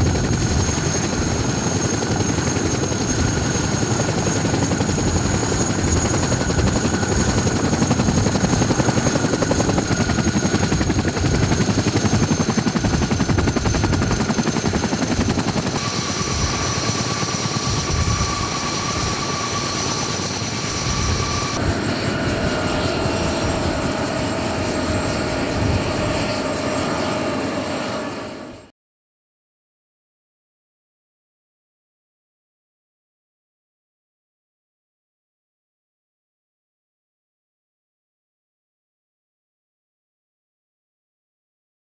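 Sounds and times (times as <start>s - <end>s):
helicopter rotors beating: 0.0s - 28.7s
turbine whine: 0.0s - 28.7s.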